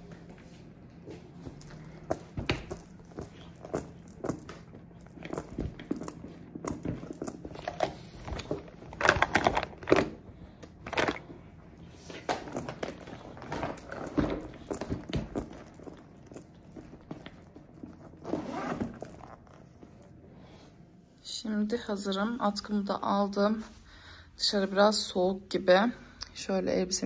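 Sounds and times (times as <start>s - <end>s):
fabric bags rustling: 1.2s - 20.2s.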